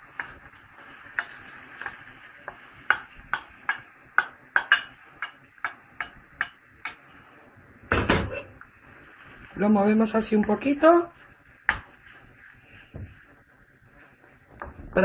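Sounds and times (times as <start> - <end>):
frying hiss: 0.0 - 15.0
wooden spoon knocking on plate: 2.9 - 6.6.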